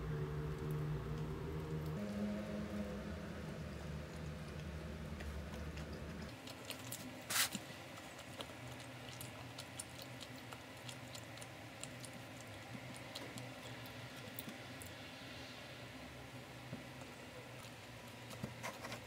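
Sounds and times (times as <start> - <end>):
low hum: 0.0 - 6.8.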